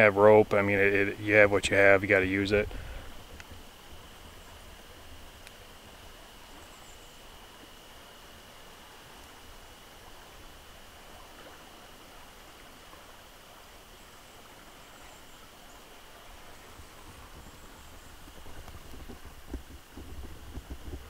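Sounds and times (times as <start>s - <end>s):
low microphone rumble: 0.0s - 6.0s, 16.4s - 21.0s
forest background hiss: 0.0s - 21.0s.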